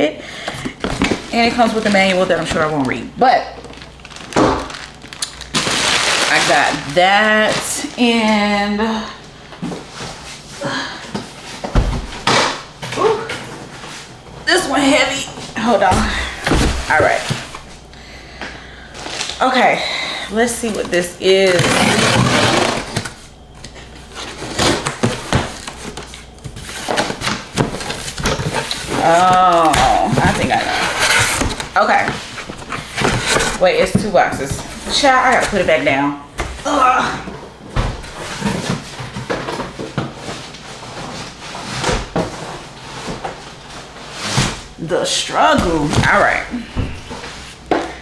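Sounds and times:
box cutter ripping packing tape: 21.5s - 23.1s
cardboard rustles and clicks: 24.2s - 35.6s.

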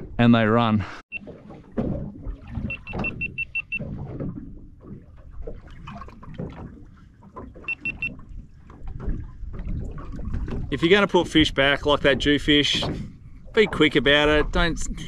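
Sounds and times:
water slapping on boat: 1.1s - 15.0s.

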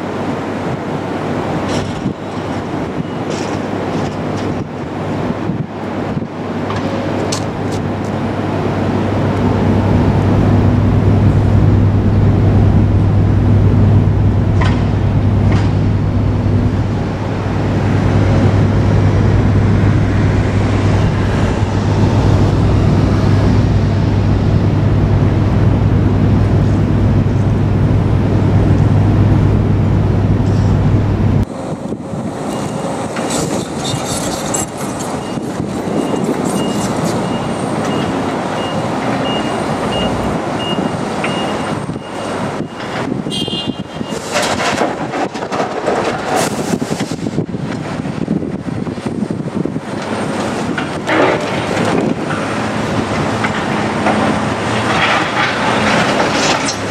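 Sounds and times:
excavator diesel engines droning: 0.0s - 56.9s
warning alarm beeps: 35.2s - 43.7s
rubble clattering into truck: 44.2s - 46.7s.

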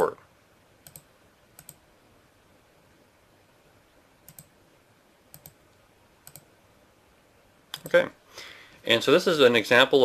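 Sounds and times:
faint room hiss: 0.0s - 10.0s
computer mouse clicks: 0.8s - 1.8s, 4.2s - 4.5s, 5.3s - 5.6s, 6.2s - 6.5s, 7.7s - 8.0s.

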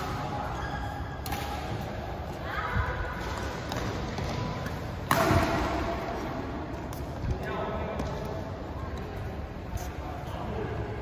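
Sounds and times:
racket hitting shuttlecock: 0.0s - 2.0s, 3.2s - 6.3s.

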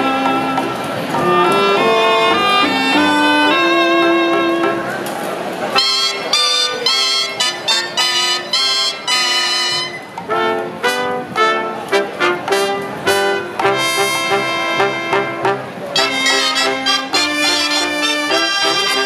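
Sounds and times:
wind and brass band playing: 0.0s - 19.0s.

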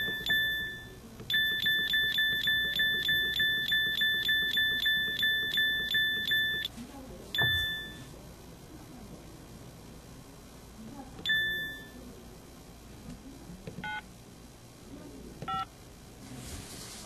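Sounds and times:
phone keypad beeps: 0.0s - 6.7s, 7.4s - 8.1s, 11.2s - 12.0s, 15.5s - 15.7s.

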